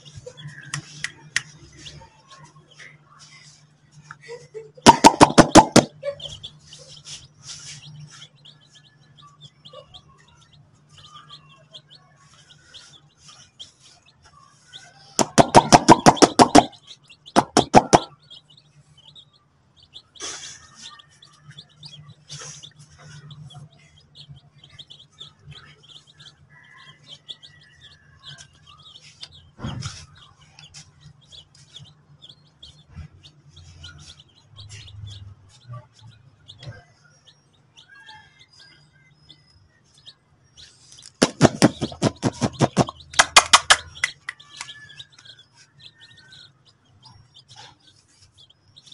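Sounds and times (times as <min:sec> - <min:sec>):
baby chicks cheeping: 0:00.0 - 0:48.9
rapid taps: 0:04.9 - 0:05.9, 0:15.2 - 0:16.7, 0:17.4 - 0:18.1, 0:41.2 - 0:44.4.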